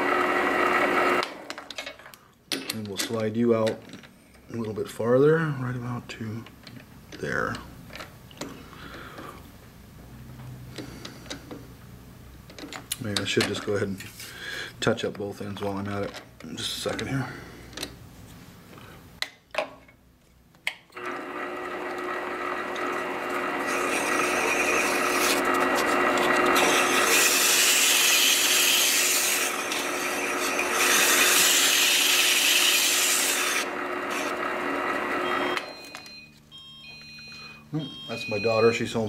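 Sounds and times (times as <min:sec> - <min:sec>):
metal lathe humming: 0:21.0 - 0:35.6.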